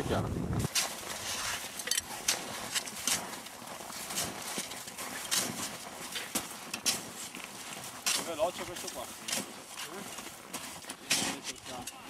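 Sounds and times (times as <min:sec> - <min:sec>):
shovel digging into snow: 0:00.6 - 0:11.8.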